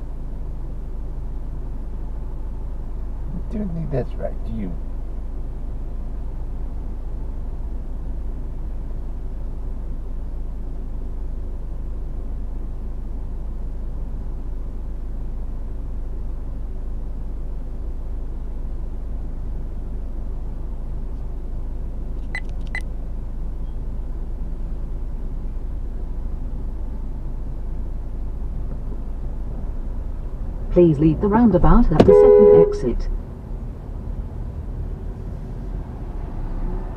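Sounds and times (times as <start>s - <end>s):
car road and engine rumble: 0.0s - 36.9s
short high beeps: 32.0s - 33.1s.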